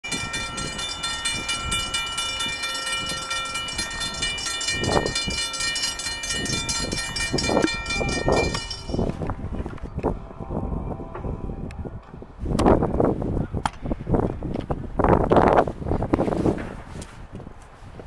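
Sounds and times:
railroad crossing bell ringing: 0.0s - 9.7s
train rumble: 0.0s - 13.1s.

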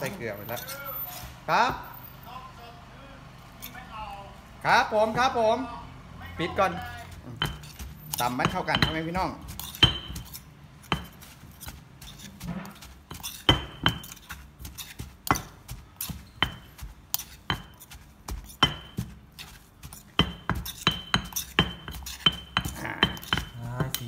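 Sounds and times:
metal spoon clinking and scraping: 0.0s - 1.4s, 3.5s - 3.8s, 7.4s - 24.0s
stone pestle knocking in mortar: 7.1s - 24.0s.

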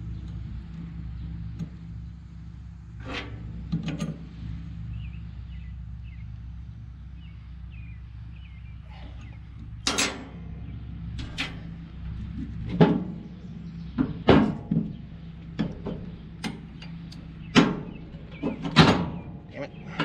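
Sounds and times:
metallic clanks and knocks: 3.0s - 4.3s, 9.6s - 20.0s.

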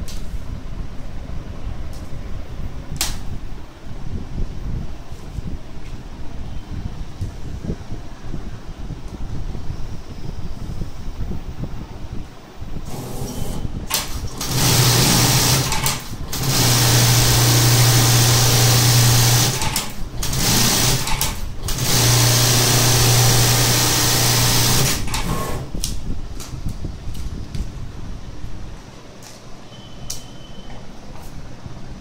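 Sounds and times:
sewing machine stitching: 12.9s - 25.7s.

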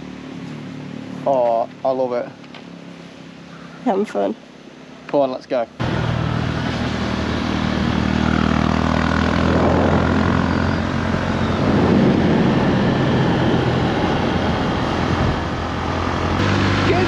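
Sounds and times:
motorbike engine running: 5.8s - 17.0s
wind rushing over microphone: 6.6s - 16.4s.

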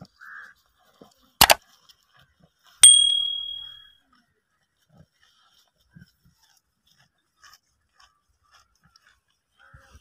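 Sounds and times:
bright bell ding: 2.8s - 3.9s.

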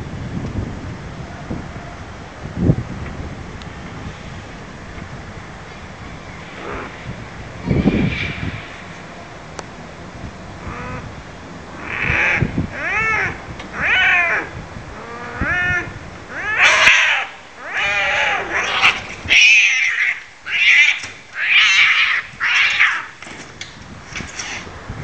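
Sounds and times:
cats yowling and screeching: 6.5s - 6.9s, 11.8s - 23.2s.

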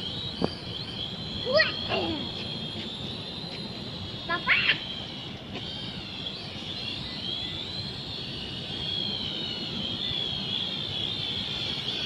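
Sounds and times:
quadcopter propellers whining: 0.0s - 12.0s.

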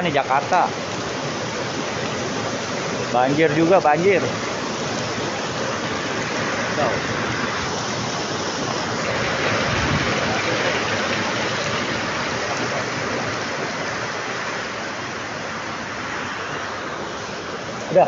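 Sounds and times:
heavy rain pouring: 0.0s - 18.0s.

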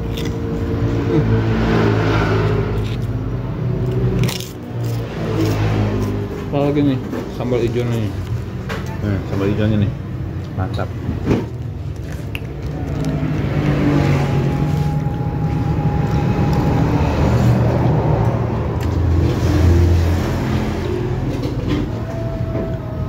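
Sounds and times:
cars and motorbikes passing: 0.0s - 23.0s
thin steady whine: 12.8s - 23.0s.

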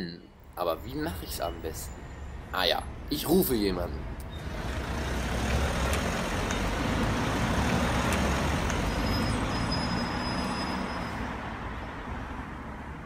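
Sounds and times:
vehicle engine rumble: 3.9s - 13.0s.

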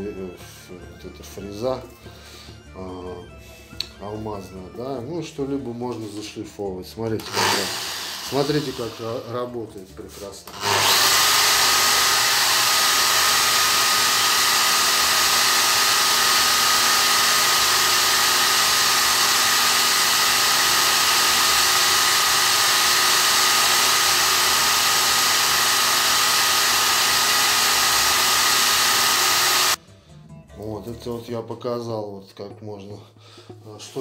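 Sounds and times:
motor rushing: 7.2s - 9.2s, 10.5s - 29.8s
grinder high whine: 7.2s - 9.4s, 10.5s - 29.8s.

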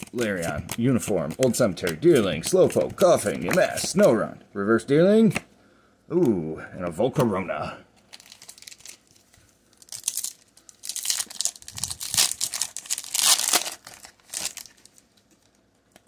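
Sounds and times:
foil wrapper crinkling and tearing: 0.0s - 4.0s, 8.1s - 16.0s.

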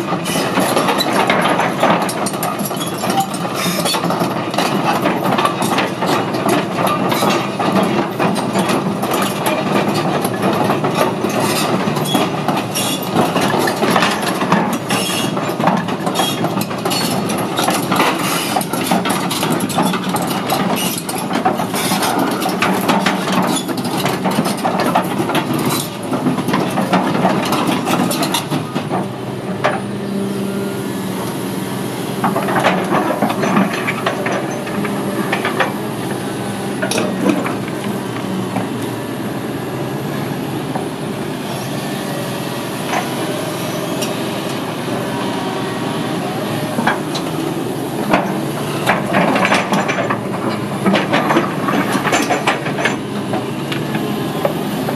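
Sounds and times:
diesel engine drone: 0.0s - 54.9s
rattling clatter of track links: 48.0s - 53.9s.

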